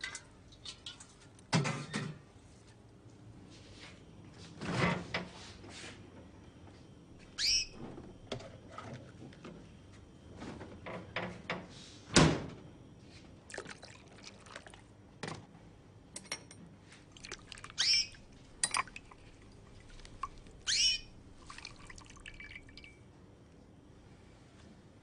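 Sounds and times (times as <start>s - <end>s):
liquid dripping in a cup: 13.5s - 14.9s, 17.1s - 23.0s.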